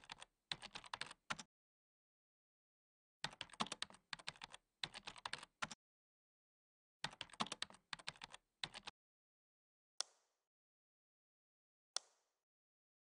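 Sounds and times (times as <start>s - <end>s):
typing on computer keyboard: 0.0s - 1.5s, 3.2s - 5.8s, 7.0s - 8.9s.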